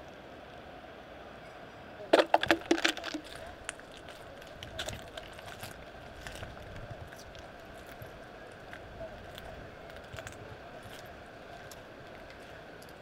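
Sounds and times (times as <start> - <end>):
glass bottles and cans clinking: 2.1 - 3.4.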